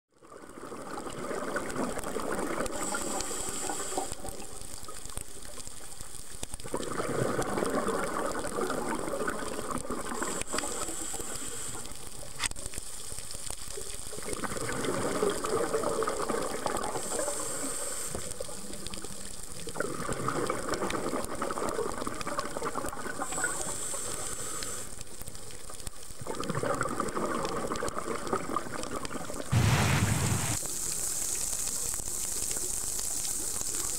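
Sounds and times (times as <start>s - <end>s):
regulator inhale hiss: 2.7s - 4.3s, 10.2s - 12.2s, 16.8s - 18.6s, 23.2s - 25.1s, 29.5s - 31.6s.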